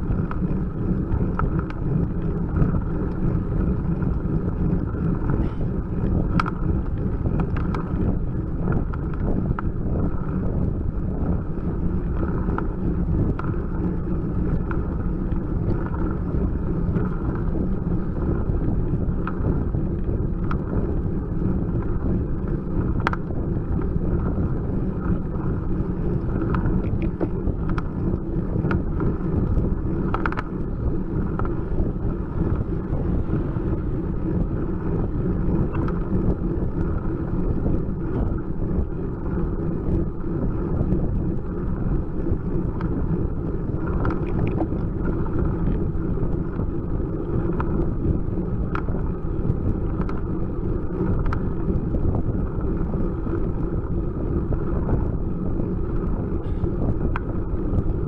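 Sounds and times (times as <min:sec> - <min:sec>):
wind and road noise: 0:00.0 - 0:58.0
faint clicks: 0:00.1 - 0:00.5, 0:01.2 - 0:03.3, 0:06.3 - 0:08.0, 0:19.2 - 0:20.7, 0:22.9 - 0:23.3, 0:26.2 - 0:28.0, 0:28.6 - 0:30.6, 0:31.2 - 0:31.6, 0:43.8 - 0:45.8, 0:47.3 - 0:47.9, 0:48.7 - 0:49.1, 0:49.9 - 0:50.3, 0:51.0 - 0:51.4.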